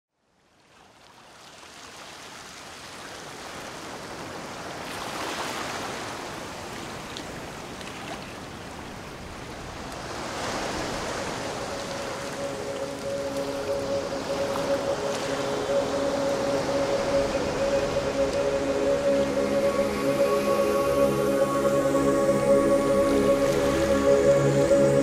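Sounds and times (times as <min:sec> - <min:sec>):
small waves washing: 0:00.6 - 0:21.0
soft music: 0:10.4 - 0:25.0.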